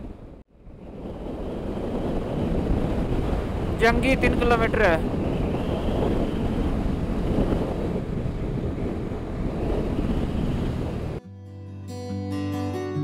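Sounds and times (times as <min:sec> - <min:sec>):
wind buffeting microphone: 0:00.0 - 0:11.2
guitar music: 0:11.2 - 0:13.0.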